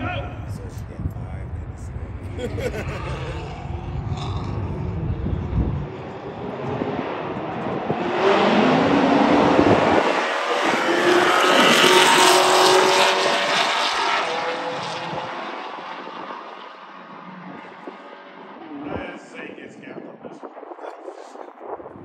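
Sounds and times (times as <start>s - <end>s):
race cars accelerating past: 0.0s - 19.2s.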